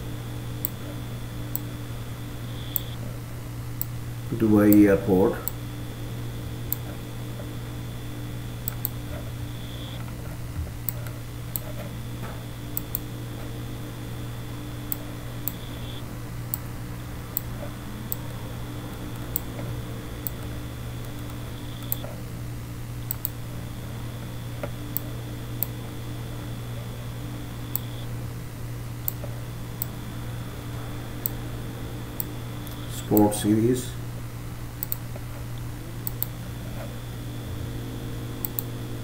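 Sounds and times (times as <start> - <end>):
computer hum and whine: 0.0 - 39.0
mouse and key clicks: 2.5 - 3.0, 8.6 - 10.1, 14.9 - 16.7, 20.2 - 22.1, 23.0 - 23.4, 27.7 - 28.0, 34.8 - 35.0.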